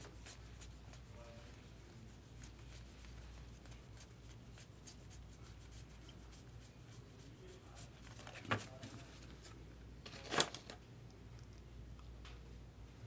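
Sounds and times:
low steady hum: 0:00.0 - 0:13.0
paper cards flicking and rustling: 0:08.0 - 0:10.8.

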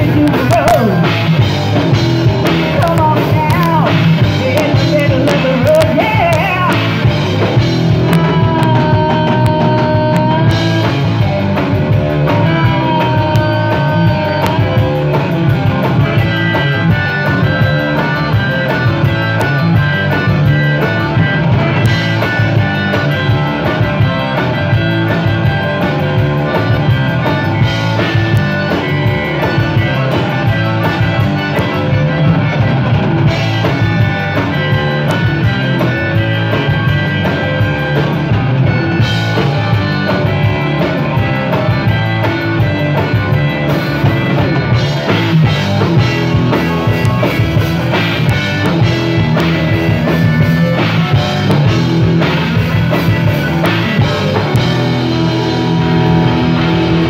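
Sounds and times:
woman singing lead: 0:00.0 - 0:01.1, 0:02.7 - 0:07.1, 0:08.0 - 0:11.3, 0:12.2 - 0:15.3
bass guitar: 0:00.0 - 0:57.0
drum kit: 0:00.0 - 0:57.0
electric guitar: 0:00.0 - 0:57.0.

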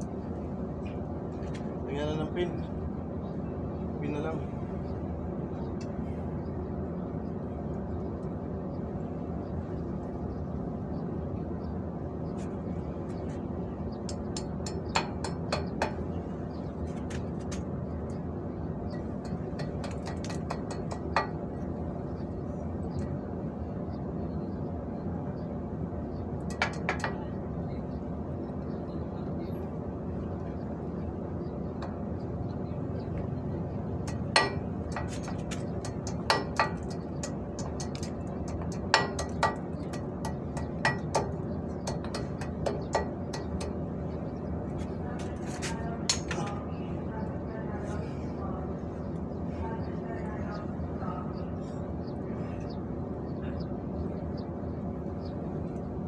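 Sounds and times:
steady low hum: 0:00.0 - 0:56.0
metal tools tapping and clinking: 0:34.0 - 0:43.8.

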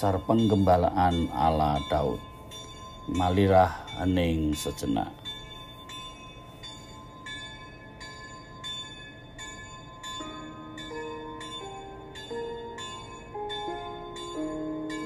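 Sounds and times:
bell tones ringing: 0:00.0 - 0:15.0
slow melody of low notes: 0:00.0 - 0:15.0.

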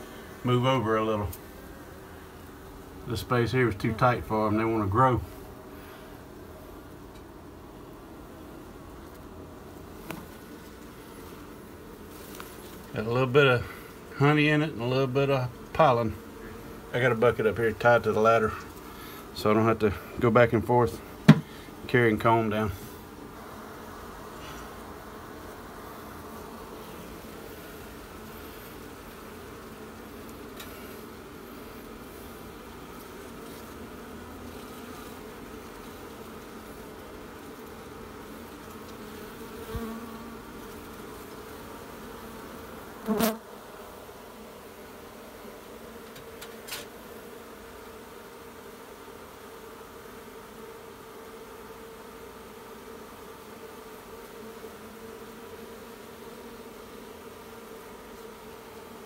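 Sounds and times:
bees buzzing: 0:00.0 - 0:59.0
sharp knock: 0:21.3 - 0:21.5.

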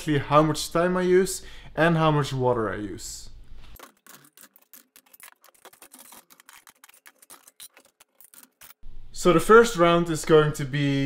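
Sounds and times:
rapid small clicks and ticks: 0:03.8 - 0:08.8.

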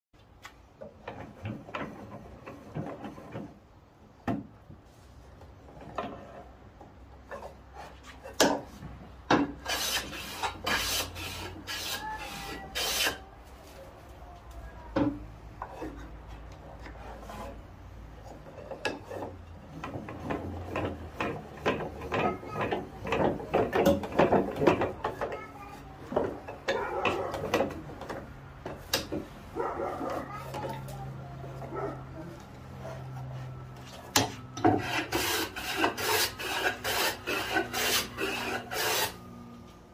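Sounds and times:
wood and screw scraping: 0:00.9 - 0:03.6, 0:07.2 - 0:13.2, 0:32.8 - 0:39.2.

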